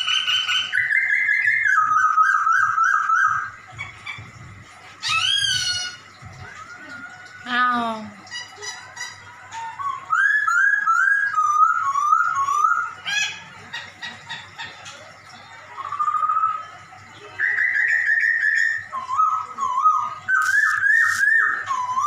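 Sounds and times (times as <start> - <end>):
bird singing whistled notes: 0.0 - 3.6, 9.5 - 13.4, 15.7 - 22.0.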